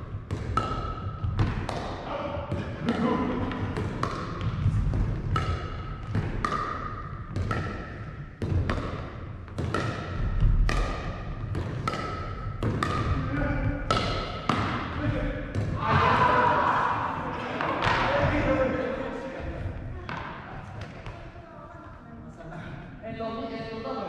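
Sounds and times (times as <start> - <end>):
paddles hitting plastic ball: 0.2 - 16.2.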